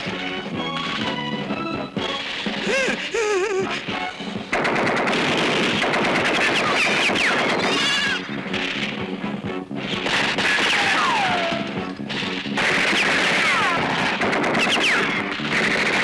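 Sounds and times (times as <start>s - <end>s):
music: 0.0s - 16.0s
machine-gun fire and gunshots: 4.5s - 9.1s, 9.8s - 16.0s.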